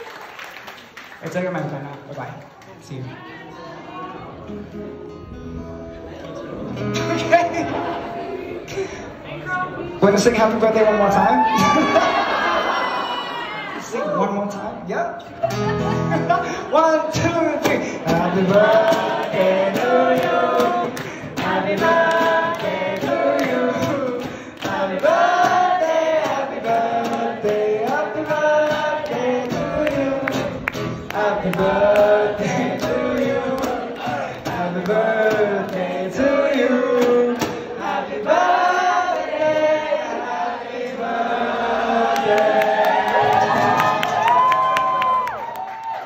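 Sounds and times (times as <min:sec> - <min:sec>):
strummed acoustic guitar: 0:04.3 - 0:09.0, 0:15.2 - 0:38.0.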